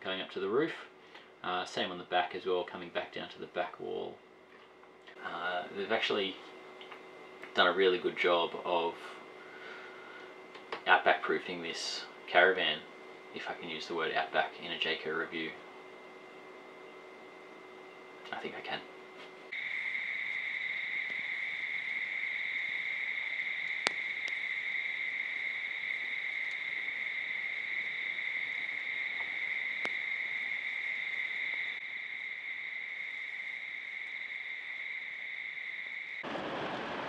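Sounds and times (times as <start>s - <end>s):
high-pitched insect chorus: 19.5s - 36.4s
faint clicks: 23.6s - 24.4s, 26.4s - 26.9s, 29.1s - 30.0s
broad rushing noise: 36.2s - 37.0s.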